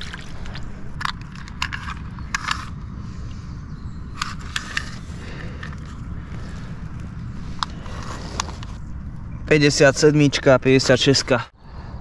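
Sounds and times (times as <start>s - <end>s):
handling clicks and rustles: 0.0s - 2.9s, 4.1s - 9.6s
steady low rumble: 0.0s - 12.0s.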